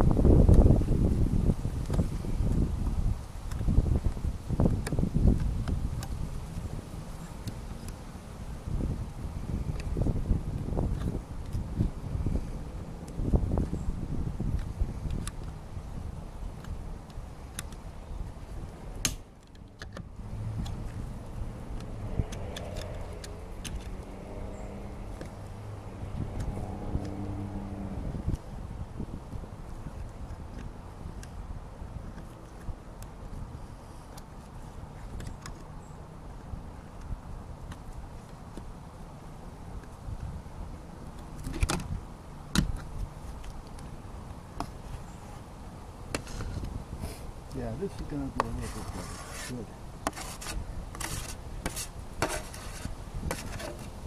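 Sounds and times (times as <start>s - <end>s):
low steady rumble: 0.0s - 35.0s
small clicks and knocks: 21.8s - 24.1s.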